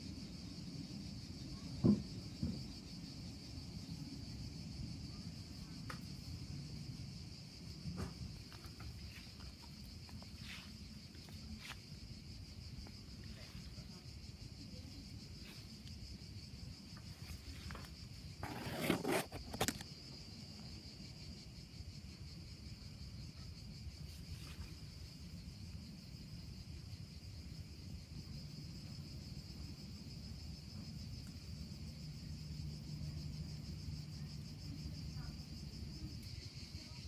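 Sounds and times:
insects trilling: 0.0s - 37.0s.

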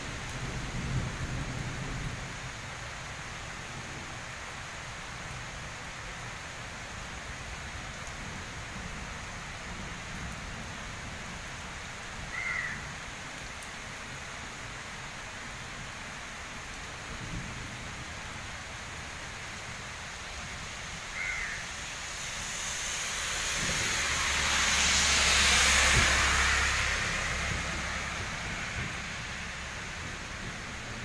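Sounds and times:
steady rain falling: 0.0s - 31.0s
tyres hissing on wet road: 0.0s - 31.0s
bird calling: 21.2s - 21.6s.

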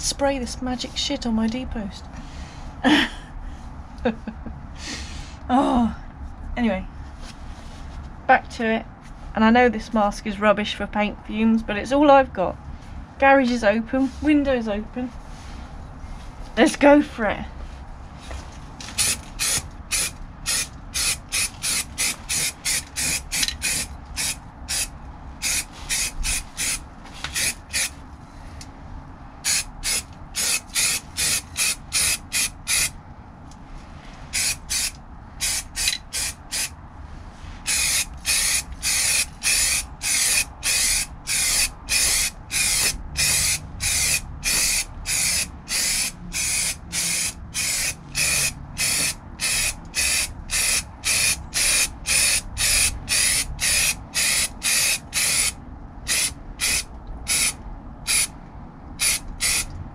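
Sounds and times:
aerosol can spraying bursts: 19.0s - 27.9s, 29.5s - 32.9s, 34.3s - 36.7s, 37.7s - 55.5s, 56.1s - 57.5s, 58.1s - 58.3s, 59.0s - 59.7s.

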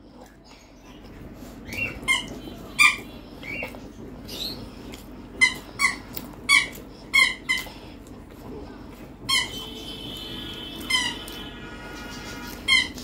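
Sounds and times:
squeaky dog toy squeaking: 5.4s - 7.6s, 9.3s - 9.7s, 10.8s - 11.4s, 12.5s - 13.0s.

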